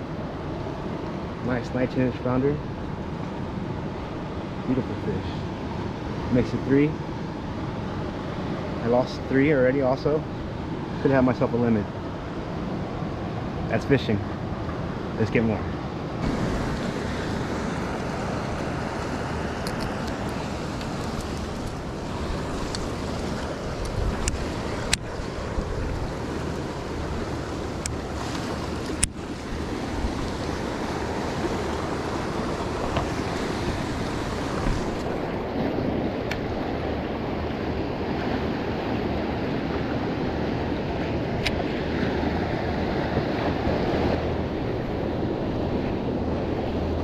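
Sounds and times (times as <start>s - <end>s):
wind buffeting microphone: 7.0s - 47.0s
waves washing against rocks: 16.2s - 36.9s.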